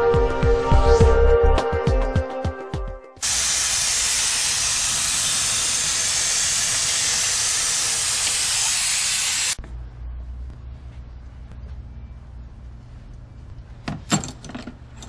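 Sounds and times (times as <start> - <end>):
air blow gun hissing: 3.2 - 9.6.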